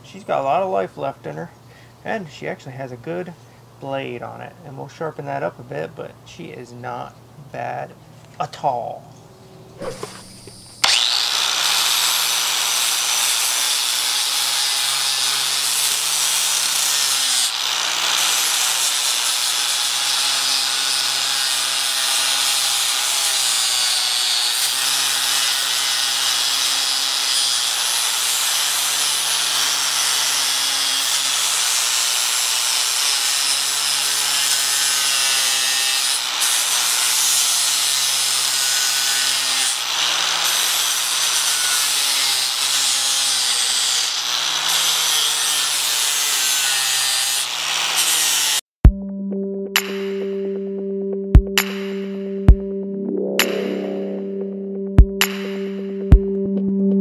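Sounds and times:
angle grinder grinding metal: 0:09.8 - 0:48.6.

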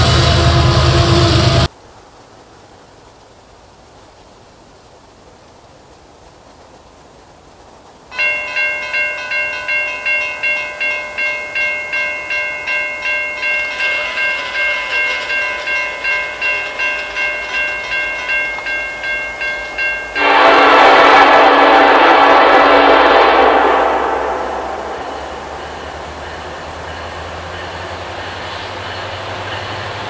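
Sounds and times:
locomotive horn: 0:00.0 - 0:01.7, 0:13.4 - 0:18.7, 0:19.6 - 0:26.4
crossing signal bell ringing: 0:08.1 - 0:30.0.

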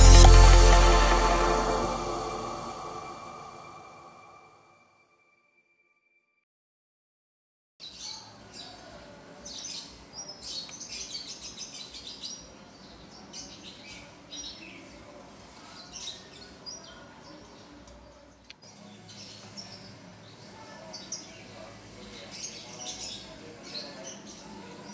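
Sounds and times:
small birds chirping: 0:07.8 - 0:24.9.

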